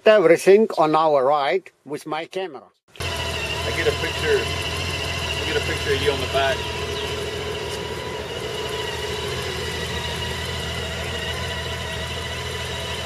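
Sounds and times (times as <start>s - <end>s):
motorcycle engine idling: 2.9s - 13.0s.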